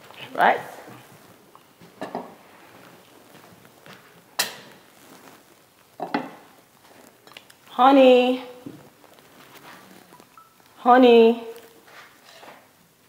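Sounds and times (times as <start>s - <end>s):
objects clattering on a table: 2.0s - 2.4s, 6.0s - 6.4s.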